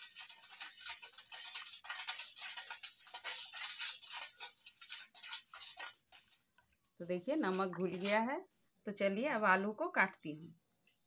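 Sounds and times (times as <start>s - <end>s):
spoon clinking and scraping bowl: 0.0s - 6.4s, 7.4s - 8.3s.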